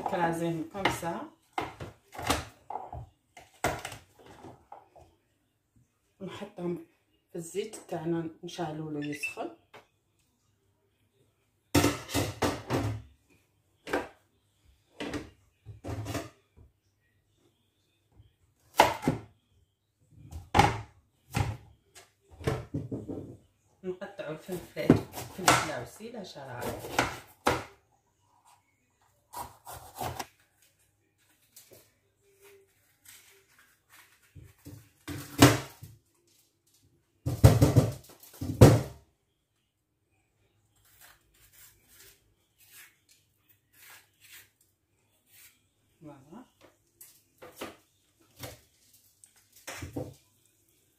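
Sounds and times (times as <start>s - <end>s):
knocks on a kitchen counter: 22.4s - 23.4s, 37.2s - 39.0s.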